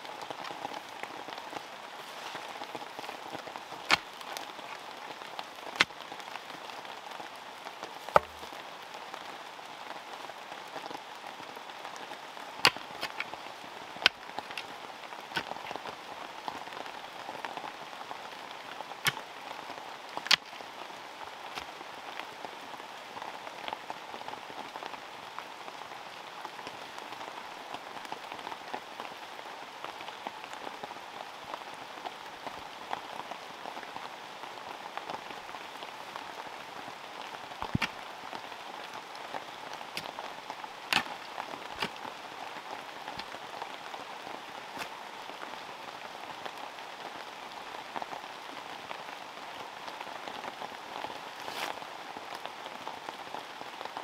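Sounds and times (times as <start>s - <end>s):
heavy rain falling: 0.0s - 54.0s
raindrop hits: 37.6s - 38.0s.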